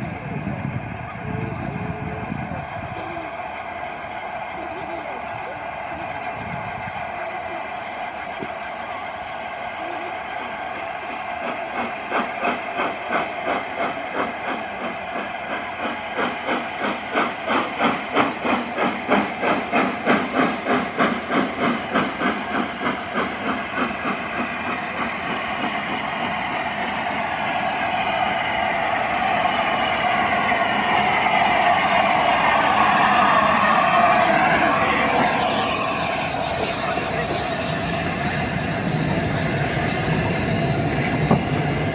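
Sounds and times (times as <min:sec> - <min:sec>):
steam locomotive chuffing: 0:00.0 - 0:41.9
steam hissing: 0:10.0 - 0:41.9.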